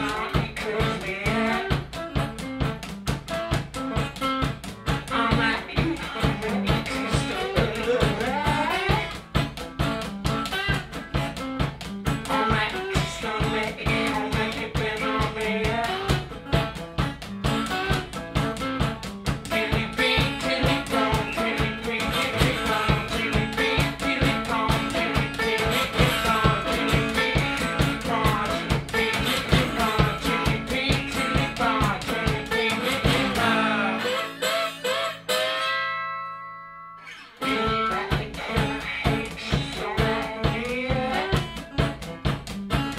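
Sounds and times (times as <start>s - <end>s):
person singing: 0.0s - 2.4s, 4.9s - 9.3s, 12.1s - 16.5s, 19.3s - 35.5s, 37.4s - 42.1s
low beat: 0.0s - 33.8s
acoustic guitar: 0.0s - 42.9s.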